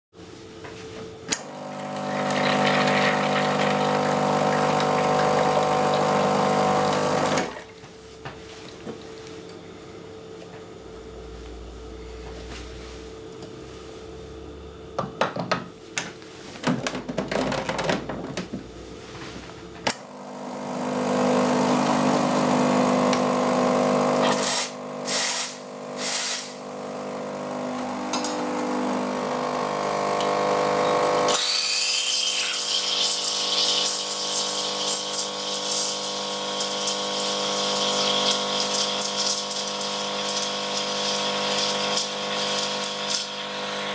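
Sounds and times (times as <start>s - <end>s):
espresso machine pump humming: 1.3s - 7.7s, 19.9s - 43.9s
portafilter clicks and knocks: 15.0s - 18.6s.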